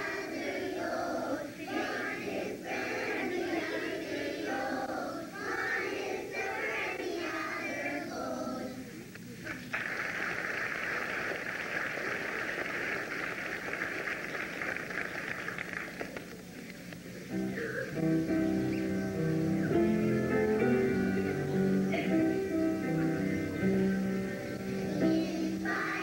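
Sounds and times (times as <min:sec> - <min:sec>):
children's choir singing: 0:00.0 - 0:09.0, 0:18.7 - 0:26.0
audience applause: 0:09.5 - 0:16.4.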